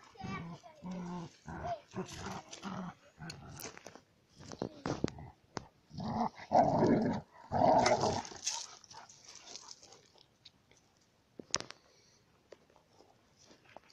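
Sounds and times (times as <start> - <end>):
dogs play-growling: 0.2 - 3.9, 5.9 - 10.0
paws on gravel: 8.0 - 10.4.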